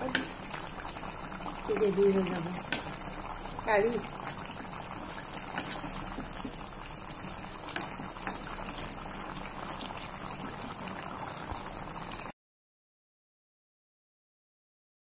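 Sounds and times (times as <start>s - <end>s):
curry bubbling in pan: 0.0s - 12.3s
metal spatula clicking on pan: 2.7s - 2.9s.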